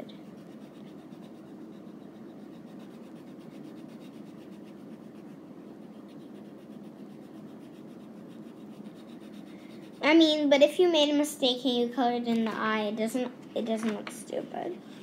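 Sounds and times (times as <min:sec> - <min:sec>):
colored pencil scratching on paper: 0:00.0 - 0:11.3.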